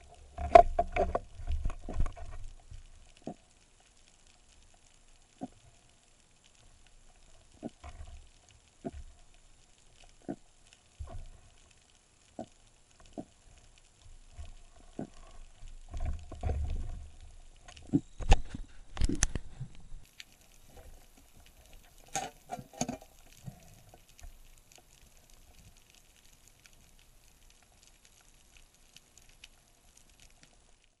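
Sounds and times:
low rumble of water movement: 0.0s - 31.0s
underwater gear clicks and knocks: 0.1s - 3.4s, 14.0s - 24.4s.

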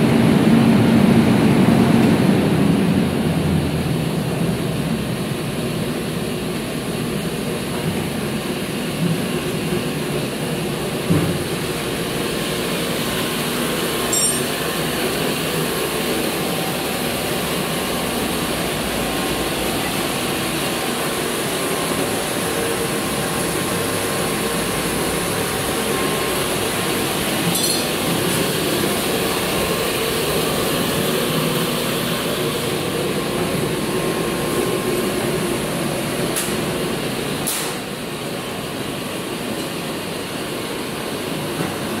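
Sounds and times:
chiller mechanical drone: 0.0s - 42.0s
light metallic clinks: 14.1s - 14.6s, 27.6s - 27.9s.

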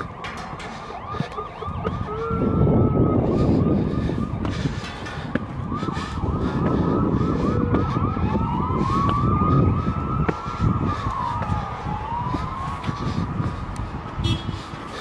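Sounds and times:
siren yelping: 0.0s - 13.8s
siren wailing: 0.0s - 14.0s.

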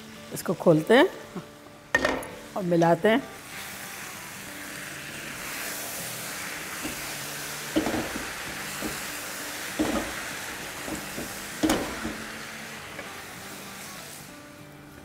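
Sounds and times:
vegetables sizzling in oil: 0.0s - 15.0s
utensil knocking on wok: 2.0s - 2.5s, 7.7s - 9.1s, 9.7s - 12.3s.

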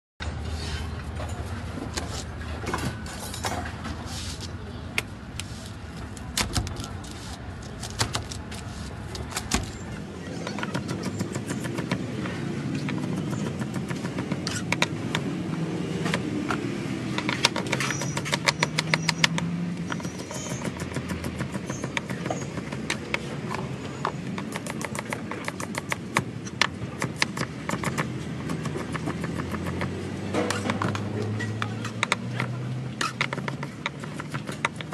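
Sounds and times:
street traffic hum: 0.2s - 34.9s
knife chopping on plastic board: 10.6s - 15.4s, 20.0s - 23.6s, 24.2s - 34.9s.

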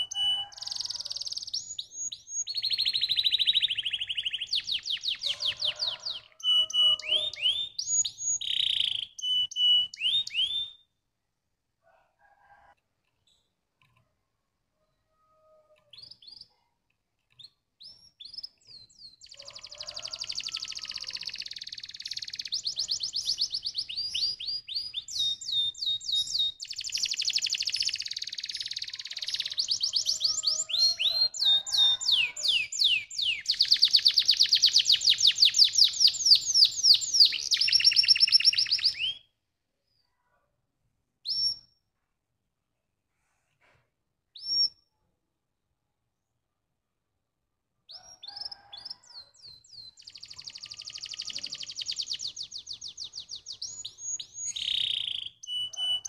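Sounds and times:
canary singing in fast trills: 0.0s - 10.8s, 17.3s - 39.3s, 47.9s - 56.0s.

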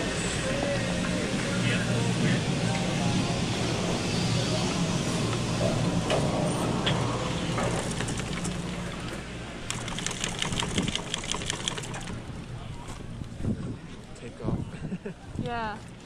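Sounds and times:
chairlift machinery hum: 0.0s - 15.1s
clicks and rattles: 9.6s - 12.2s.

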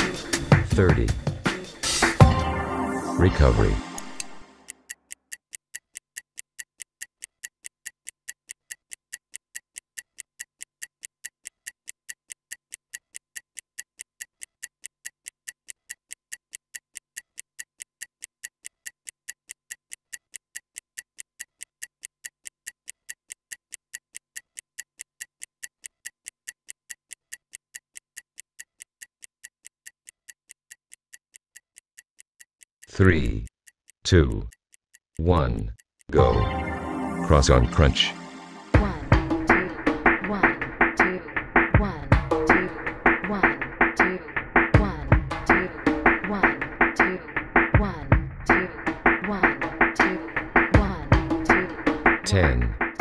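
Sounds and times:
stopwatch ticking: 0.0s - 2.2s, 4.0s - 36.2s.

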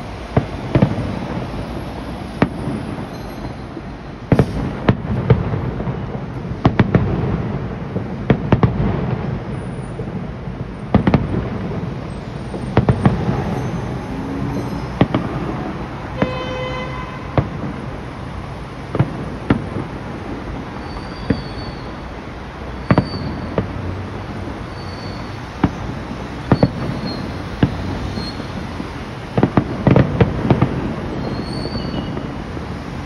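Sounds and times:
fireworks bursting in sharp bangs: 0.0s - 33.0s.

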